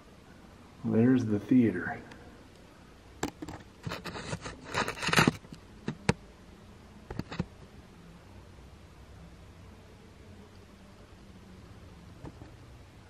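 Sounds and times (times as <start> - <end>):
camera handling clicks and scrapes: 3.2 - 5.5.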